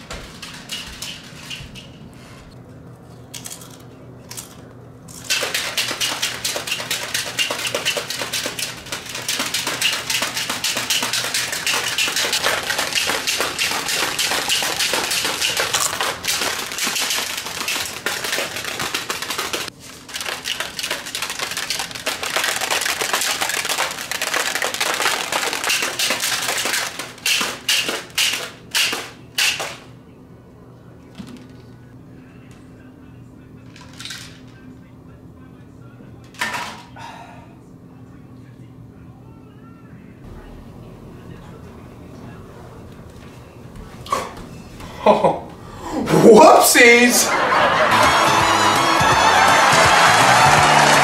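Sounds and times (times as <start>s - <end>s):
object shaken rattling: 0.0s - 2.1s, 3.3s - 29.7s.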